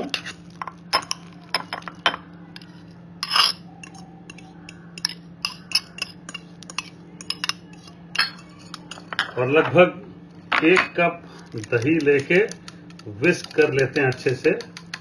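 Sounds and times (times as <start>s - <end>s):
utensil scraping bowl: 2.6s - 9.6s
utensil clinking glass bowl: 5.0s - 9.6s.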